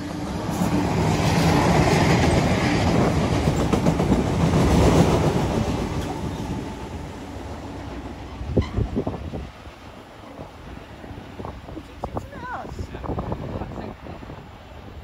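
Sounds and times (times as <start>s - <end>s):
freight train wheels clattering: 0.2s - 9.1s.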